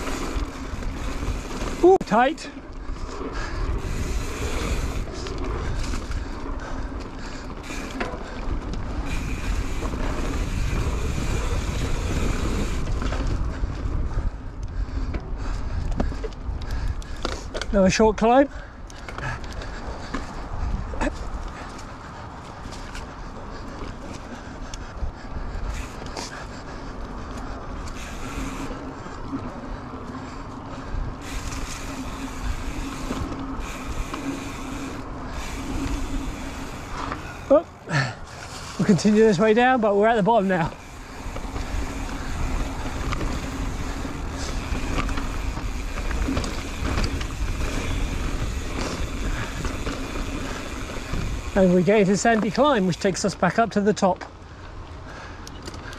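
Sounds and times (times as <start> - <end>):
bike clicks and knocks: 0.0 - 18.2, 18.8 - 24.9, 25.5 - 37.6, 38.3 - 53.3, 55.3 - 55.9
wind buffeting microphone: 0.0 - 52.4
steady low rumble: 39.8 - 51.6.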